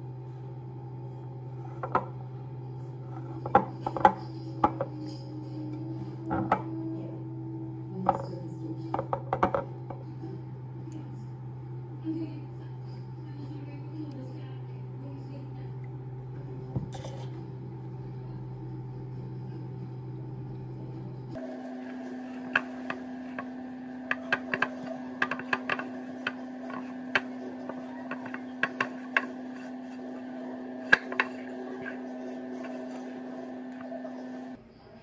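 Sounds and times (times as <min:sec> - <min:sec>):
steady hum: 0:00.0 - 0:34.9
dough knocking against bowl: 0:03.4 - 0:04.9, 0:08.9 - 0:10.0, 0:22.4 - 0:30.0, 0:30.8 - 0:32.9.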